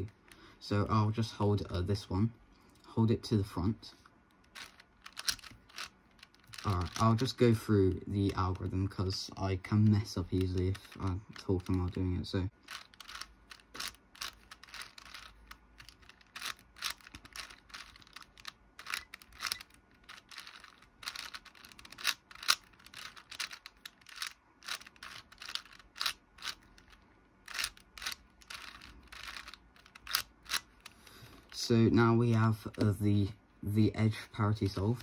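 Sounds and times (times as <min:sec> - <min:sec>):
puzzle cube layers clicking: 0:04.3 - 0:08.5, 0:09.8 - 0:12.0, 0:12.7 - 0:31.0.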